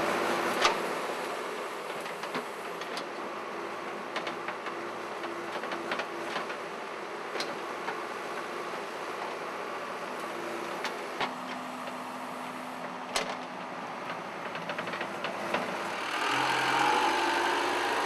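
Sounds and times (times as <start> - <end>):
diesel engine running: 11.3 - 18.0.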